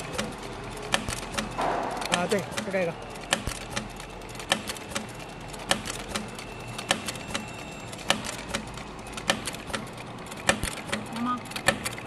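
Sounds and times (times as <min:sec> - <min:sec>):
sewing machine needle clicks: 0:08.0 - 0:12.0.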